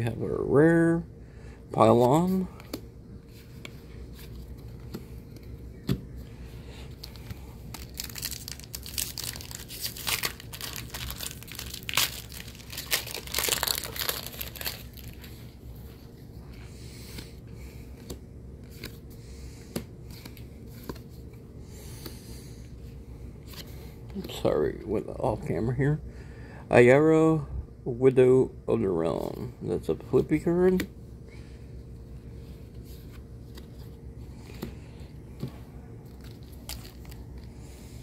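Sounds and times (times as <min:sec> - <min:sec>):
foil wrapper tearing and crinkling: 0:07.7 - 0:15.2.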